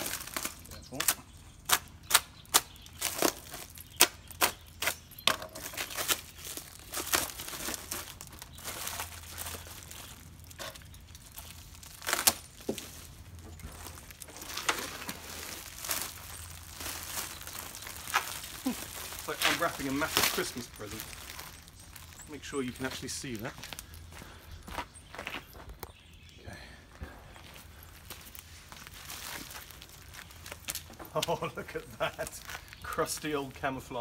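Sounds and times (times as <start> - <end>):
plastic crinkling and rustling: 0.0 - 1.7, 2.7 - 24.1, 27.5 - 33.3
tape and plastic snapping and ripping: 0.0 - 22.1, 28.1 - 31.5.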